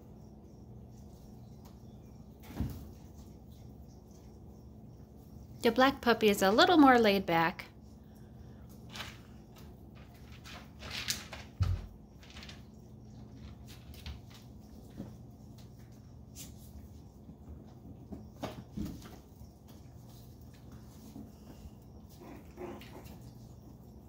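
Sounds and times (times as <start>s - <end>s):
steady low hum: 0.0s - 24.0s
puppy claws clicking on tile: 8.9s - 12.6s.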